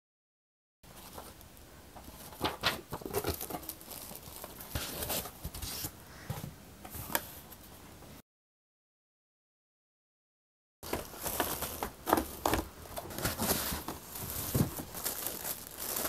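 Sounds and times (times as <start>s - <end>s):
packaging rustling and crinkling: 0.9s - 5.9s, 10.8s - 16.0s.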